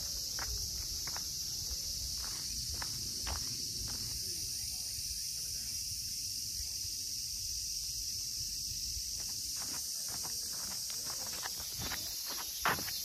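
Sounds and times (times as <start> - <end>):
footsteps on dirt trail: 0.0 - 4.3, 9.0 - 13.0
cicada chorus drone: 0.0 - 13.0.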